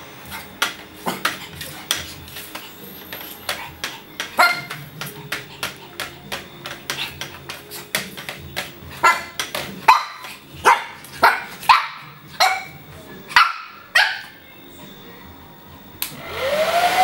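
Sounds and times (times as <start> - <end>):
puppy yipping and barking: 4.4 - 4.8, 9.9 - 14.4
hair dryer: 16.0 - 17.0.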